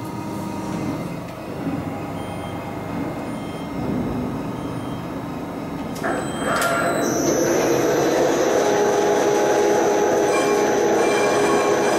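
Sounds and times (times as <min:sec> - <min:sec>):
drilling machine humming: 0:06.0 - 0:11.9.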